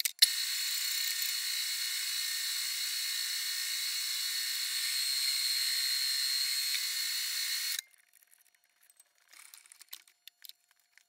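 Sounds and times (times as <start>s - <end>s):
metal lathe whine: 0.2s - 7.8s.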